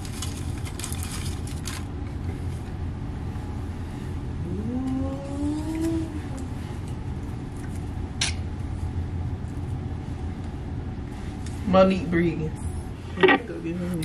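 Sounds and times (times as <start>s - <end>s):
steady low rumble: 0.0s - 14.0s
rising pitched tone: 4.4s - 6.6s.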